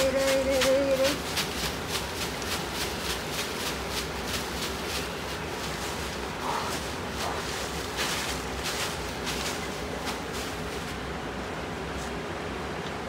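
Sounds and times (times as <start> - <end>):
leaves rustling: 0.0 - 12.7.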